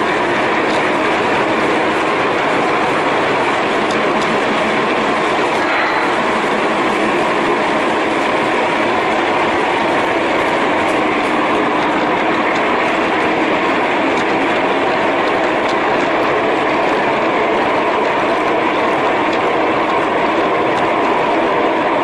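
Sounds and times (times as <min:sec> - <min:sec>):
model train rolling on track: 0:00.0 - 0:22.0
faint irregular clicks: 0:00.1 - 0:05.6, 0:08.9 - 0:21.8.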